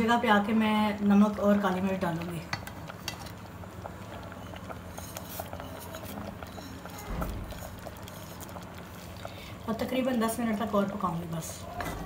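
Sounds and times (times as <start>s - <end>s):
syrup simmering in a pot: 0.0s - 12.0s.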